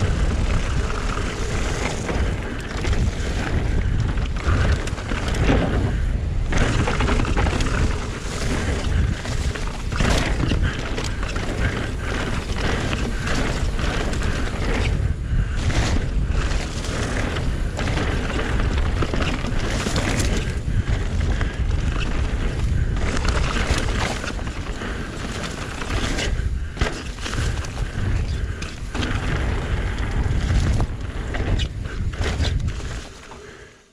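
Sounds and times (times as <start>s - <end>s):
wind buffeting microphone: 0.0s - 33.4s
bike knocks and rattles: 0.0s - 33.5s
tyre noise on dirt trail: 0.0s - 33.9s.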